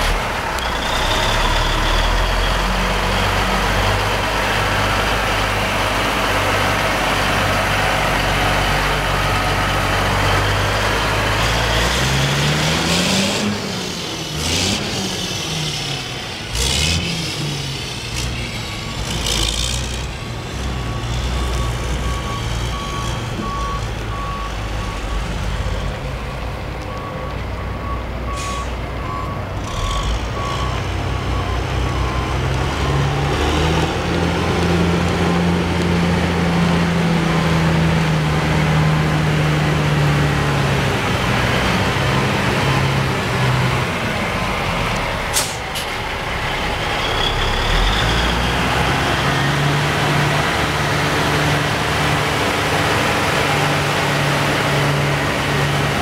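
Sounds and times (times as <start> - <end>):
truck diesel engine revving: 0.0 - 56.0
air brake hisses: 28.4 - 28.8, 45.3 - 45.9.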